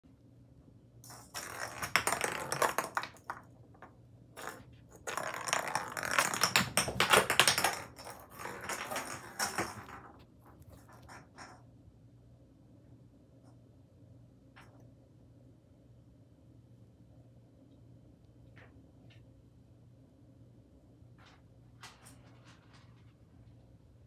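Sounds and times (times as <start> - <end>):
ball tapping on hardwood floor: 1.2 - 11.2.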